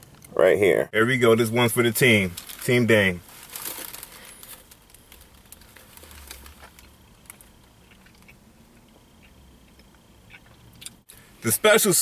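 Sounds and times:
person chewing: 5.7 - 11.2.

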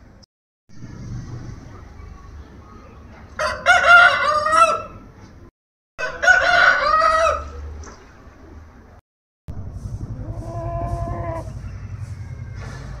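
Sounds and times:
rooster crowing: 3.4 - 4.9, 6.0 - 7.5.

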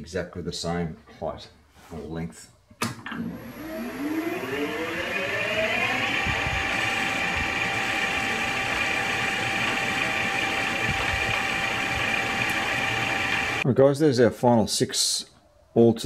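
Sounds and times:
lathe spinning with whine: 3.0 - 13.6.

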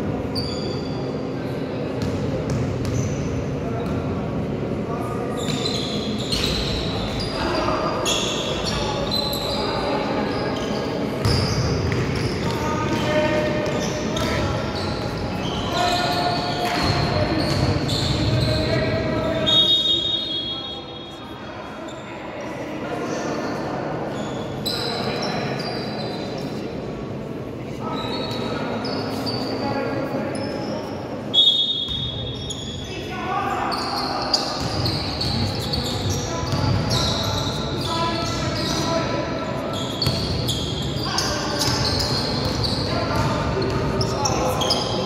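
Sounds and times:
voices in a hall: 0.0 - 45.0
sneaker squeaks on court: 2.0 - 4.0, 5.3 - 20.5, 30.3 - 33.0, 33.7 - 45.0
basketball bouncing on gym floor: 41.6 - 43.9.

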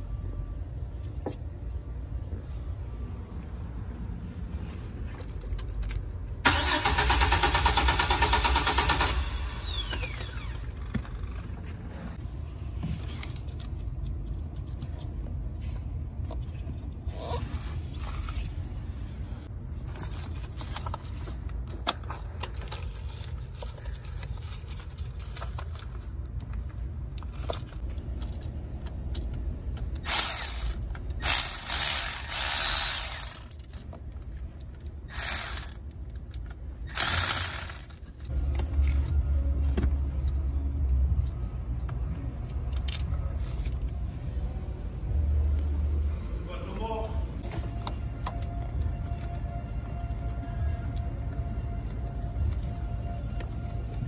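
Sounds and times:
clicking and scraping of hand tools: 29.1 - 38.3
electric ratchet running: 30.0 - 33.7, 35.1 - 35.8, 36.9 - 38.0.

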